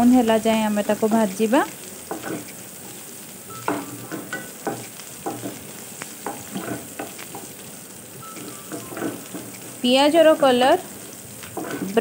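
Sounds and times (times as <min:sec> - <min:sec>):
onions sizzling in oil: 0:00.0 - 0:12.0
wooden spatula scraping a pan: 0:02.1 - 0:02.6, 0:03.7 - 0:07.7, 0:08.4 - 0:09.8, 0:11.5 - 0:12.0.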